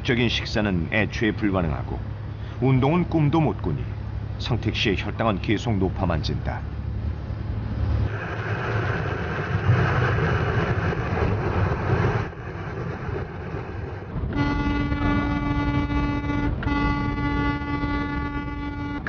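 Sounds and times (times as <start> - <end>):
vehicle road and engine noise: 0.0 - 19.0
locomotive air horn chord: 14.3 - 19.0.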